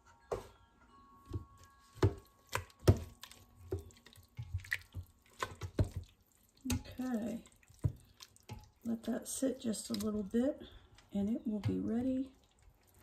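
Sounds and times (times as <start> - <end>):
wet squelching of noodles: 2.4 - 13.0.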